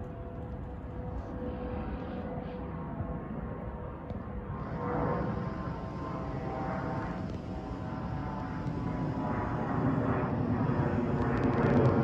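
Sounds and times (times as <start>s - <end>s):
jet engines rumbling: 4.4s - 12.0s.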